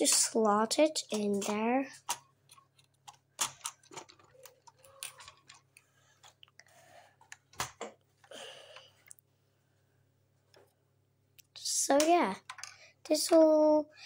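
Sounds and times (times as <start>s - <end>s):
plastic bricks clicking: 1.3s - 5.7s.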